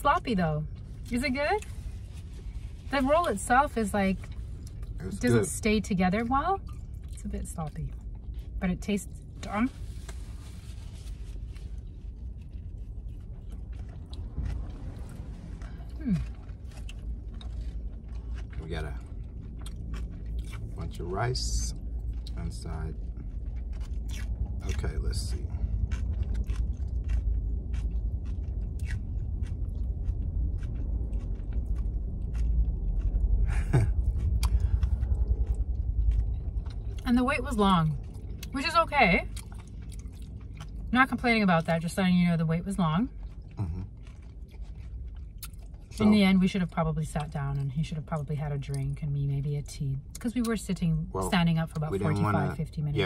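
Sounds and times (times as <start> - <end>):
low cabin rumble: 0.0 - 53.0
faint chewing: 0.6 - 53.0
voice-like murmur: 43.6 - 43.9.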